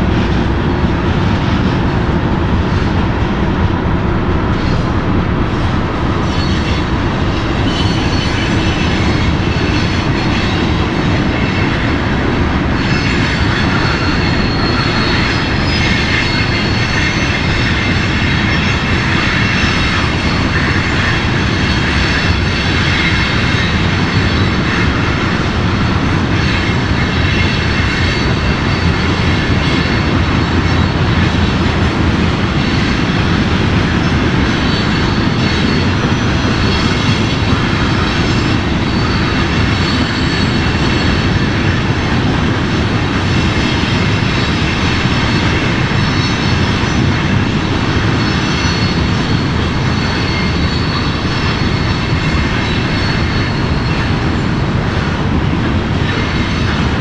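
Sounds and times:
drone propellers whirring: 0:00.0 - 0:57.0.

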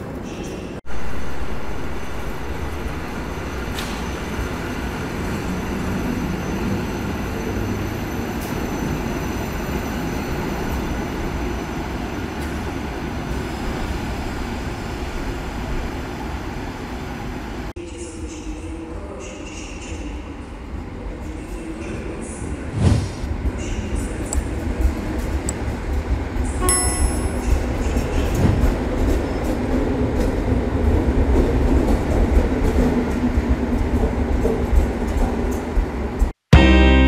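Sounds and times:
electric train rumbling: 0:00.0 - 0:36.7
high whines: 0:00.9 - 0:07.0.

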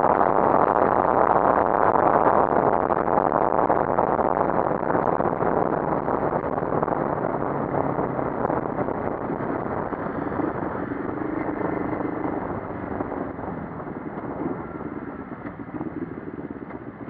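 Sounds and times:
motorcycle engine running: 0:04.5 - 0:17.0.

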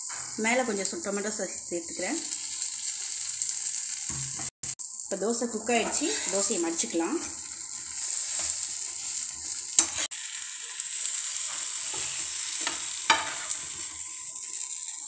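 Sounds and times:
pancake sizzling on griddle: 0:00.0 - 0:15.0
steel spatula scraping: 0:05.7 - 0:10.1, 0:11.4 - 0:14.0.

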